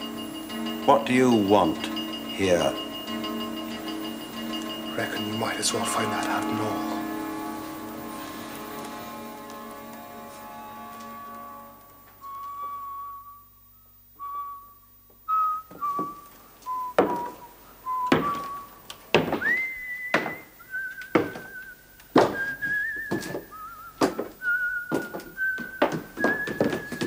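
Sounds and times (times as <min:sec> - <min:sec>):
steam locomotive chuffing: 0:00.0 - 0:12.4
whistled tune with vibrato: 0:00.0 - 0:27.0.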